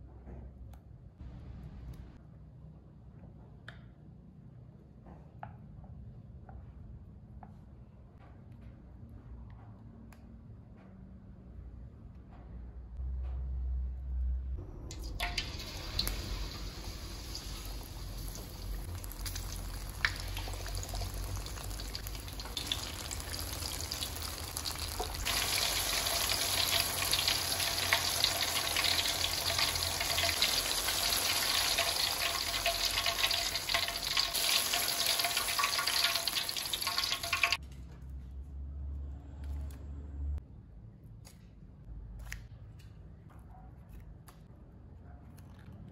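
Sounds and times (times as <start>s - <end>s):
fritters sizzling in hot oil: 15.0s - 37.6s.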